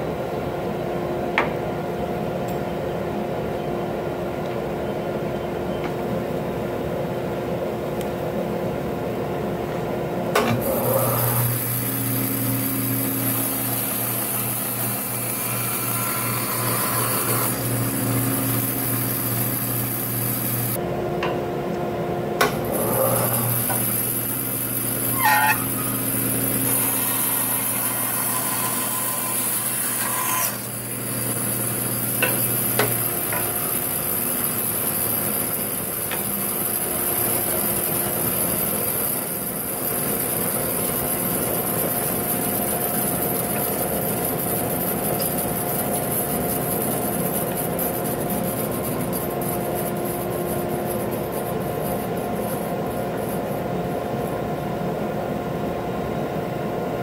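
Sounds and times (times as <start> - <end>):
bandsaw motor humming: 10.4 - 20.8, 22.4 - 54.5.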